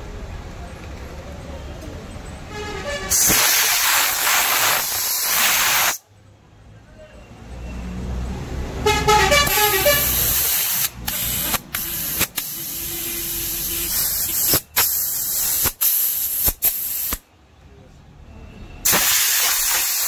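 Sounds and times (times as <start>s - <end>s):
air gun hissing blasts: 3.1s - 6.0s, 9.4s - 17.2s, 18.8s - 20.0s.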